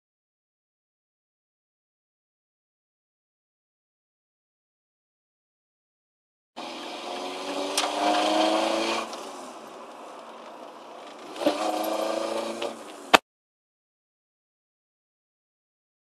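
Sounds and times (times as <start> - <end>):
car engine revving: 6.6 - 13.2.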